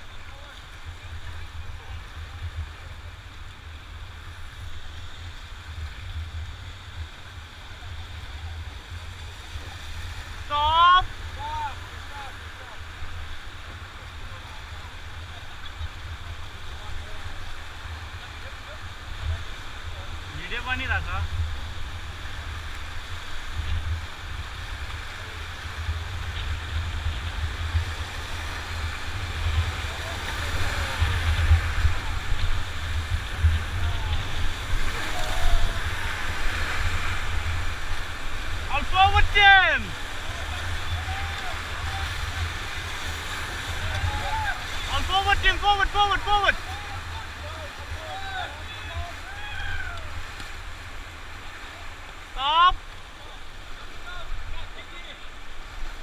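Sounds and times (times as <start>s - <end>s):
wind rumble on microphone: 0.0s - 38.7s
whitewater rapids rushing: 0.0s - 56.0s.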